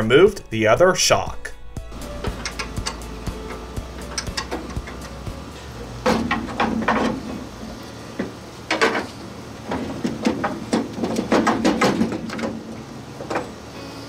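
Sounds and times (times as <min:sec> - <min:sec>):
metallic clicks and clunks: 0:02.2 - 0:07.6, 0:08.2 - 0:13.6.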